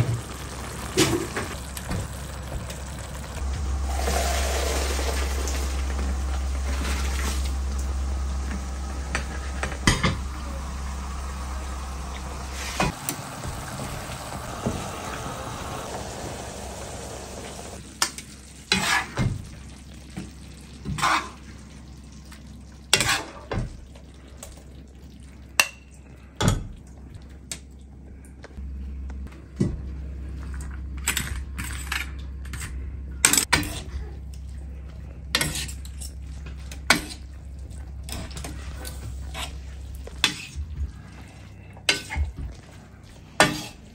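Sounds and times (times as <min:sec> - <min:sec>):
water pouring through colander: 0:00.0 - 0:08.0
light sizzling: 0:00.0 - 0:23.4.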